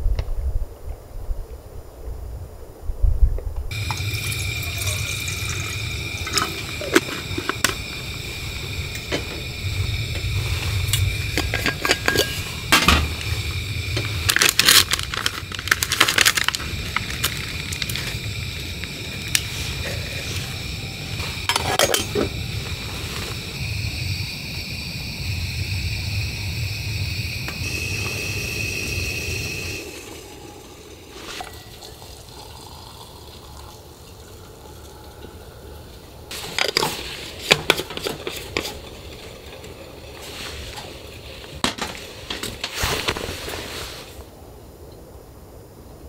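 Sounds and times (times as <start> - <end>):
water pouring into metal tumbler: 3.7 - 22.8, 27.5 - 42.4
water rumbling in kettle: 3.7 - 42.8
lid clicking and clinking: 11.4 - 13.0, 21.5 - 22.3.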